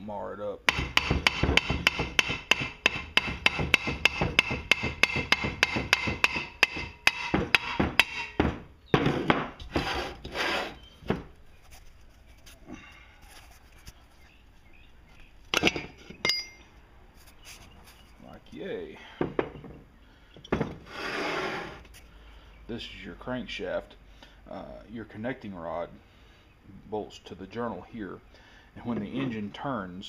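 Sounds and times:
hammer tapping on metal: 0.7s - 8.6s
metal scraping: 9.1s - 12.6s, 20.8s - 21.9s
metal clinks ringing: 15.6s - 16.7s.

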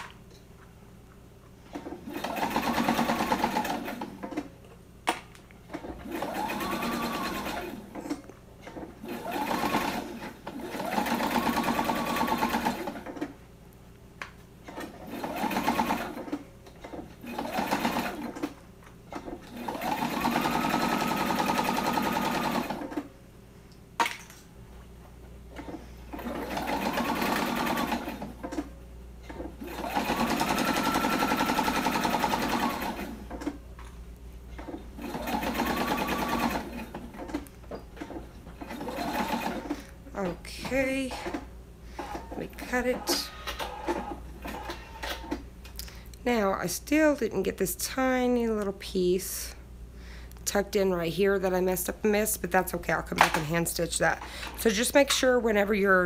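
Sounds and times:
sewing machine stitching: 1.7s - 4.5s, 5.7s - 13.3s, 14.7s - 23.1s, 25.5s - 28.7s, 29.3s - 33.6s, 34.6s - 45.4s.

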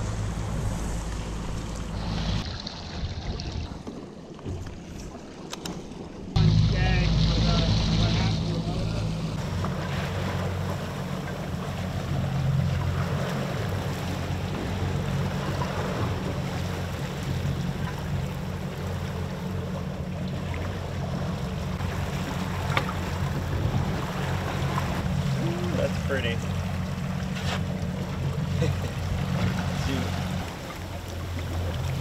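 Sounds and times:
wind on microphone: 0.0s - 3.9s, 23.2s - 25.8s
outboard motor running: 0.0s - 32.0s
water rushing past hull: 0.0s - 32.0s.

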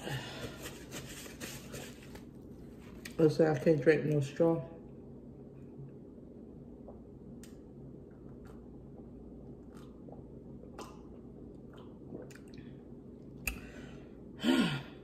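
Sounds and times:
person gulping a drink: 6.7s - 13.7s.

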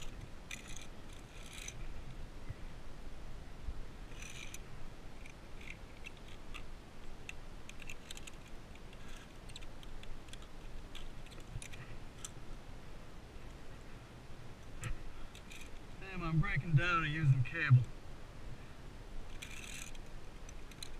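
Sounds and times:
metal climbing gear clinking: 0.0s - 2.0s, 4.1s - 4.6s, 5.2s - 12.4s, 14.8s - 15.8s, 19.3s - 20.9s.

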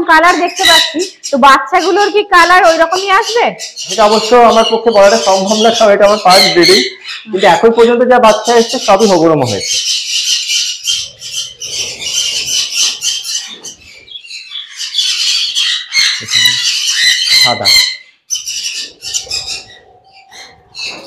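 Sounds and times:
budgerigars chattering and warbling: 0.2s - 21.0s
budgerigar squawks: 9.6s - 21.0s.

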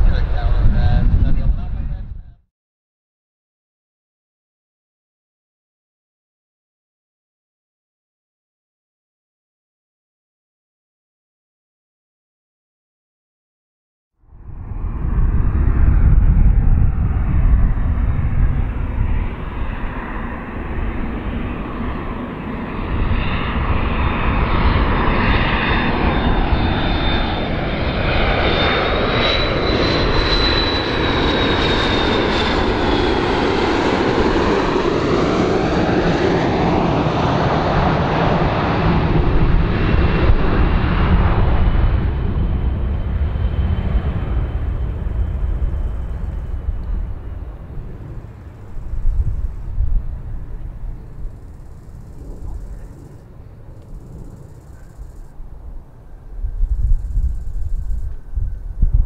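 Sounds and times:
jet engine whine: 0.0s - 2.4s, 14.2s - 59.0s
low engine rumble: 40.3s - 59.0s.

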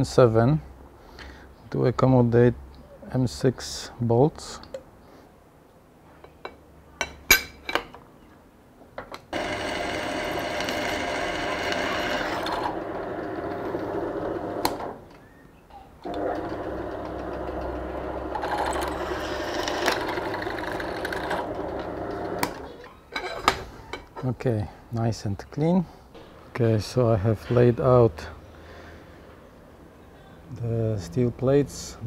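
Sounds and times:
drill press boring through steel: 9.4s - 14.9s, 16.1s - 22.7s.

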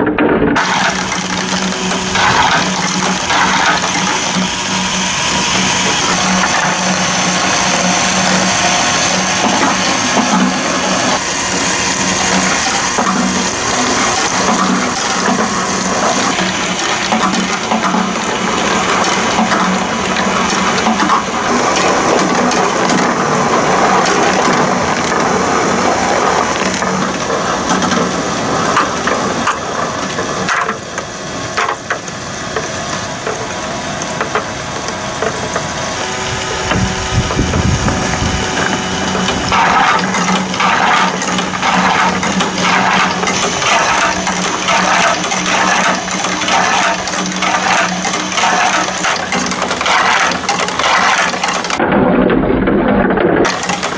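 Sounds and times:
plastic balls clattering and rolling: 0.0s - 4.6s, 39.1s - 53.9s
toy motor humming: 33.3s - 51.8s.

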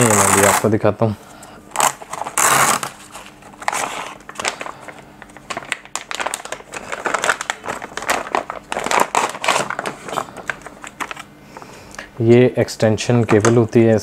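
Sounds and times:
plastic bag crinkling: 0.0s - 0.8s, 1.8s - 11.3s.

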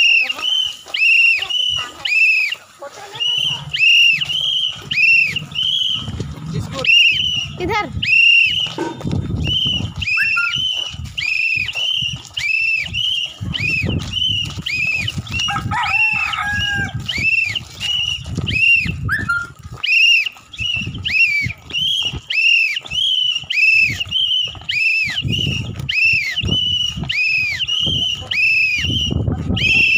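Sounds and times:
whistle short blasts: 3.2s - 6.1s, 6.8s - 15.1s, 17.2s - 29.9s.

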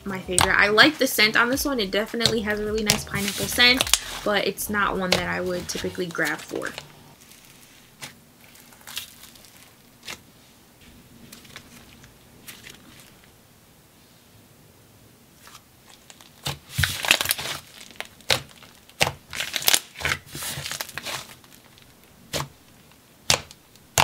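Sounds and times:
slime squelching: 0.0s - 13.3s, 15.4s - 24.0s.

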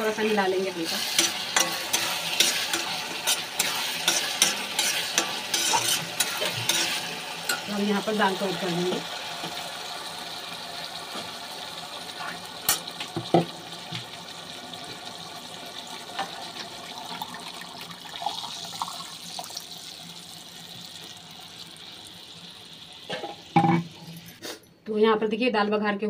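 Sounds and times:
liquid pouring and splashing: 16.0s - 24.0s.

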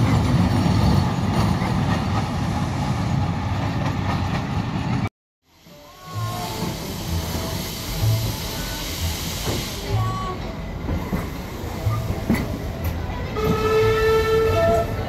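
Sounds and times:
steam train thumping and rumbling: 0.0s - 5.1s, 6.2s - 15.0s
steam train whistle: 13.4s - 15.0s.

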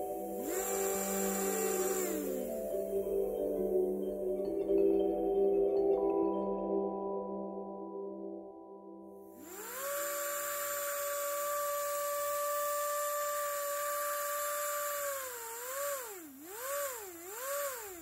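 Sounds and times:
small electric motor whining: 0.0s - 3.2s, 9.4s - 18.0s.

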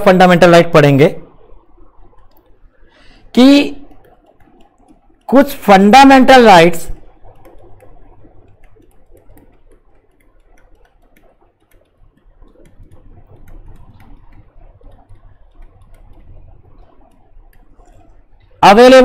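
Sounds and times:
low steady hum: 0.0s - 19.0s
stylus tapping on pen tablet: 7.3s - 18.1s.

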